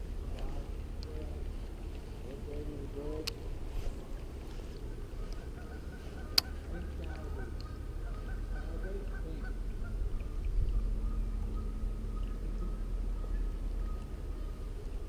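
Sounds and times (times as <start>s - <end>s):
honking bird calls: 5.2s - 14.6s.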